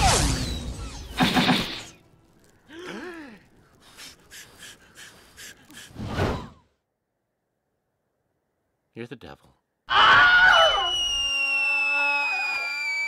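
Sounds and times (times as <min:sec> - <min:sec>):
gasp-like vocal: 0:02.7 - 0:06.0.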